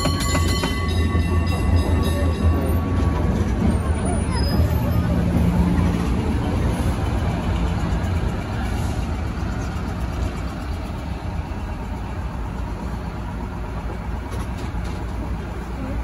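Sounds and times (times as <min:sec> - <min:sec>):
low rumble of city traffic: 0:00.2 - 0:16.0
faint voices: 0:01.6 - 0:10.1.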